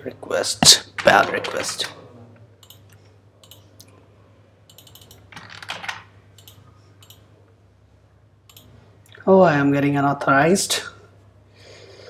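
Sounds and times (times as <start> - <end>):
computer keyboard typing: 0.9 - 1.9, 4.7 - 7.2.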